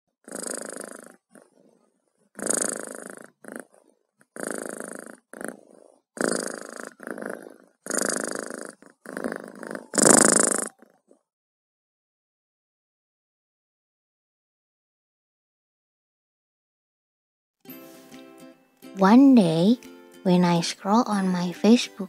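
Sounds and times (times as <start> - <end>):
cat purring: 0.2 - 11.3.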